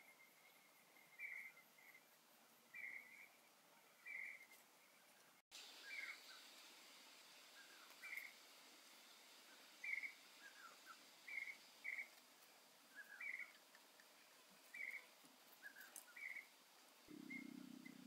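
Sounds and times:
bird calling: 0.0s - 2.0s, 5.8s - 6.4s, 7.6s - 8.4s, 9.8s - 12.2s, 12.9s - 13.7s, 14.7s - 16.5s, 17.1s - 18.0s
low hum: 5.6s - 18.0s
soft low falling bird notes: 9.8s - 18.0s.

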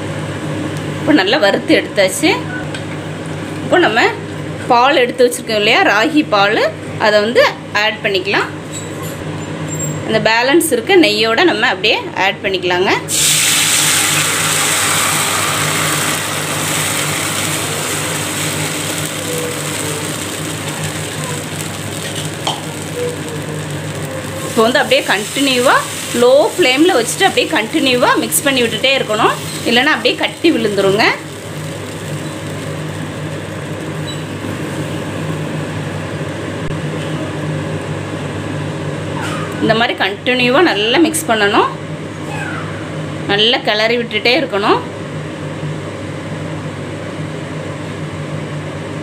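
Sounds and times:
low hum with hiss: 0.0s - 49.0s
milk sizzling in hot fat: 13.1s - 35.8s.

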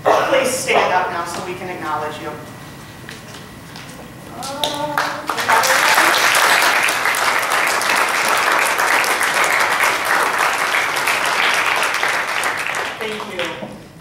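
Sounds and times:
crowd clapping: 3.8s - 13.9s.

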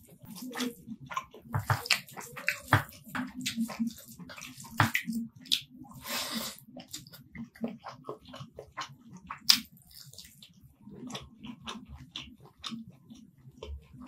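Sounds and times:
lip smacks and chewing: 0.0s - 14.0s.

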